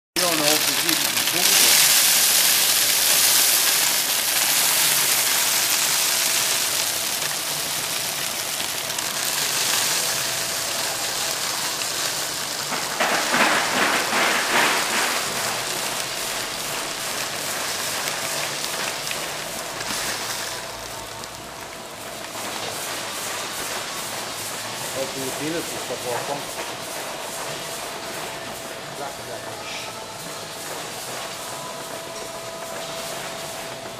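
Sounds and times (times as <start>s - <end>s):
conveyor carrying loose product: 12.6s - 16.0s.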